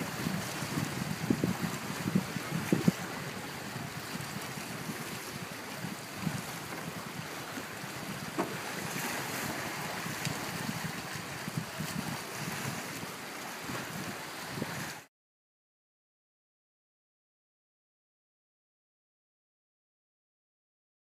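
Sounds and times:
wind buffeting microphone: 0:00.0 - 0:15.0
waves washing against rocks: 0:00.0 - 0:15.1.

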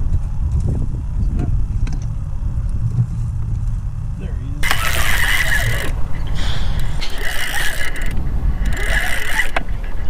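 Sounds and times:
fishing reel ratcheting whir: 0:04.6 - 0:10.0.

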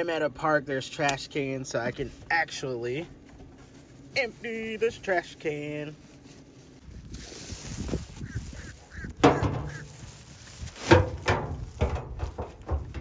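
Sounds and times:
plastic trash bag rustling: 0:02.6 - 0:13.0
bird calls: 0:08.1 - 0:10.2.

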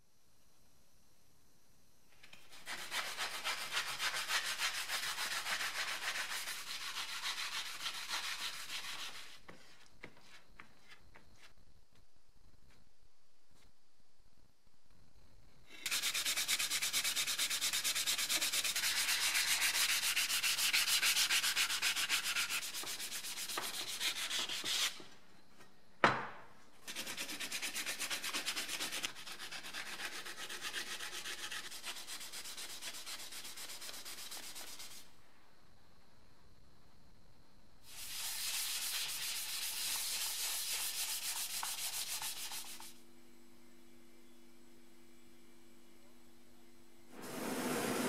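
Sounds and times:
hand sanding strokes: 0:02.4 - 0:10.4, 0:15.9 - 0:25.0, 0:26.8 - 0:35.1, 0:37.9 - 0:43.0.

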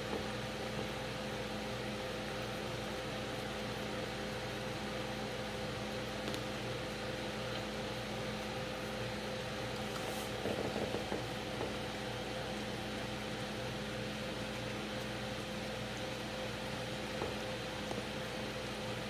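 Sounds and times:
steady machine hum: 0:00.0 - 0:19.0
soft rustle: 0:09.8 - 0:10.4.

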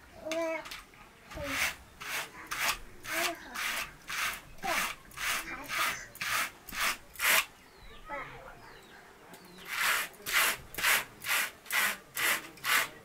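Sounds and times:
hand carders brushing wool: 0:01.4 - 0:07.5, 0:09.6 - 0:13.0.

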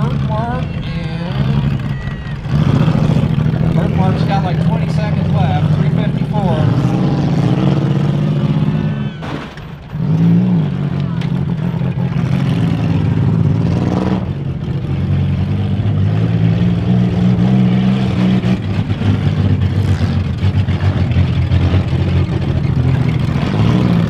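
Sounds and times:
car engines revving: 0:00.0 - 0:24.0.

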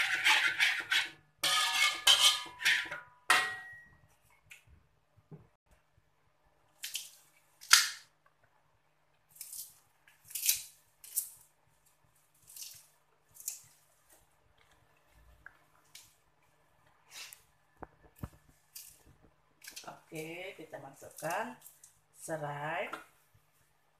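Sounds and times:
metal spoon knocking wok: 0:01.4 - 0:04.0.

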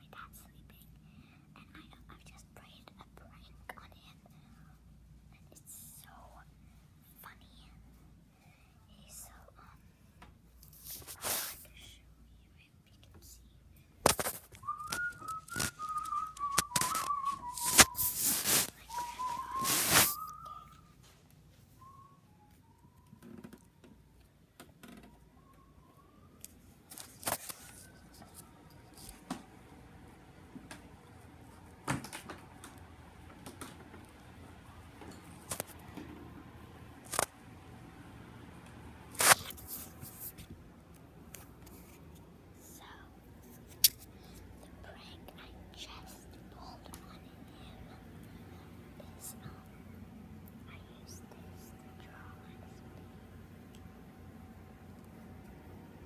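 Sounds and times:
person whistling a tune: 0:14.6 - 0:20.9, 0:21.7 - 0:23.1.

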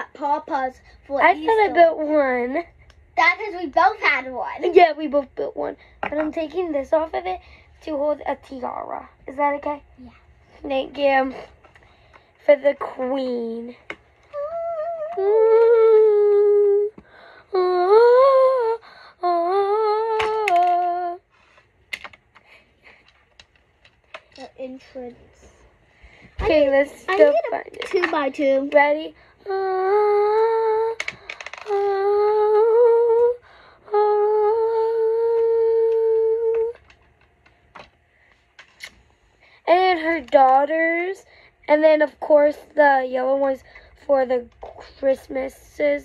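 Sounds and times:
girl humming: 0:14.2 - 0:21.3, 0:29.4 - 0:36.9.

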